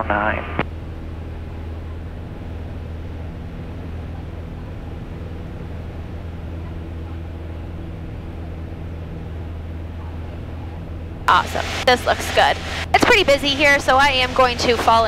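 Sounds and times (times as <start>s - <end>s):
propeller plane engine droning: 0.0s - 15.0s.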